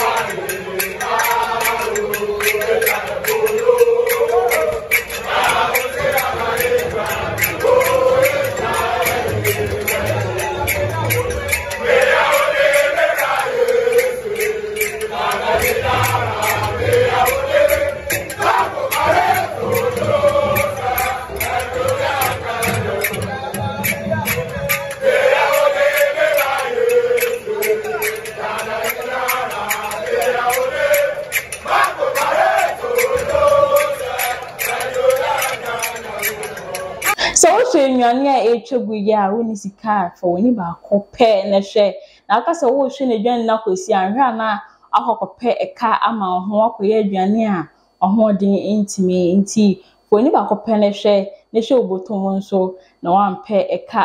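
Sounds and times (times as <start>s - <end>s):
quick steady drum beat: 0.0s - 31.1s
men chanting in unison: 0.0s - 37.9s.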